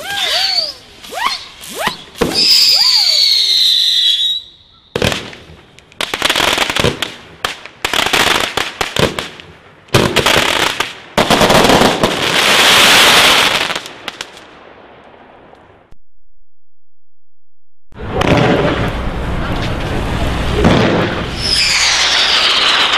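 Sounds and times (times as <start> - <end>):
firework reports: 18.0 - 22.9
firework crackling hiss: 19.7 - 22.9.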